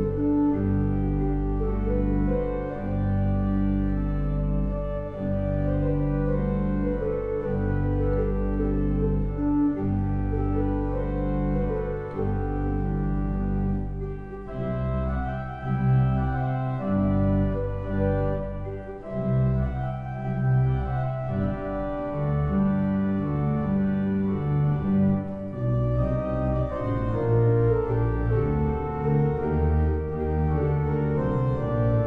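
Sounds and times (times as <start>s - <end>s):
church organ playing: 0.0s - 32.0s.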